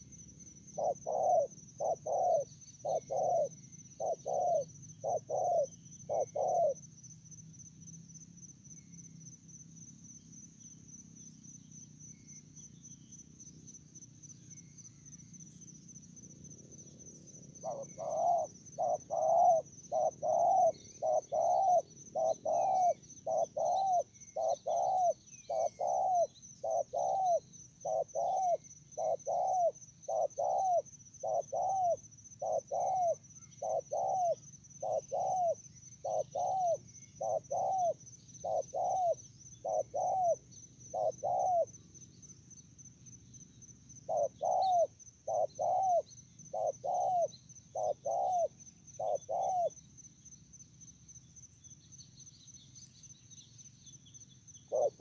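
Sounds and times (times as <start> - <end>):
dove cooing: 0.7 - 6.8, 17.5 - 41.7, 44.0 - 49.8, 54.7 - 55.0.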